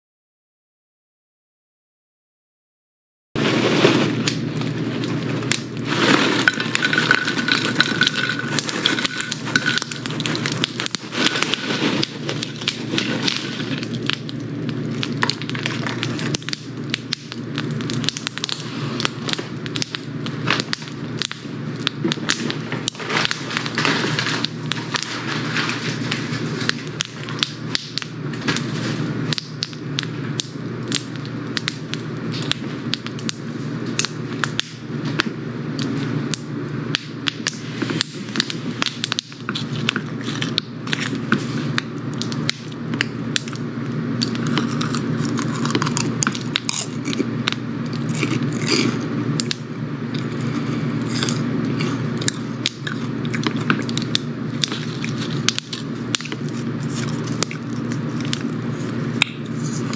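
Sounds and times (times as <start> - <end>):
paper bag rustling: 3.4 - 14.0, 22.9 - 26.7
pork rinds crackling onto plate: 3.7 - 59.9.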